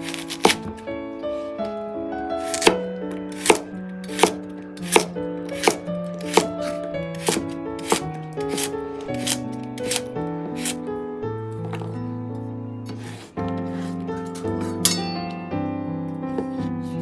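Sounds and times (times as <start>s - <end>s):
soft piano music: 0.0s - 17.0s
knife chopping on wooden board: 0.1s - 0.8s, 2.4s - 10.8s, 16.4s - 17.0s.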